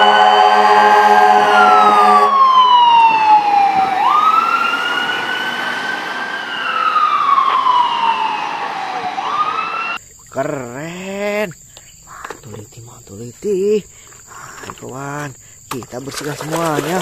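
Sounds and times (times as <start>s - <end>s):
fire truck siren wailing: 0.0s - 10.0s
steady horn blast: 0.0s - 10.0s.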